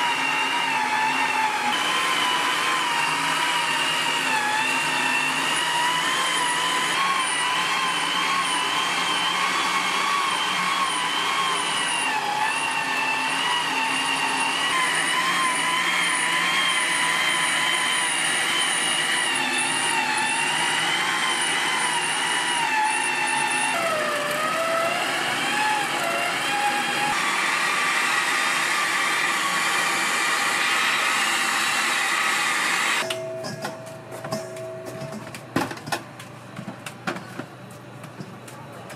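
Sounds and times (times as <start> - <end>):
kitchen machine motor whining: 0.0 - 35.2.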